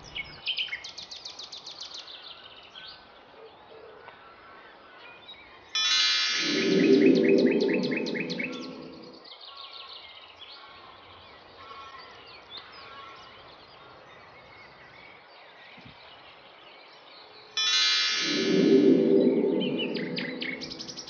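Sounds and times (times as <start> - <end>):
twinkling magic chimes: 6.3 - 9.2, 17.6 - 21.0
low hum: 6.4 - 9.2, 17.7 - 21.0.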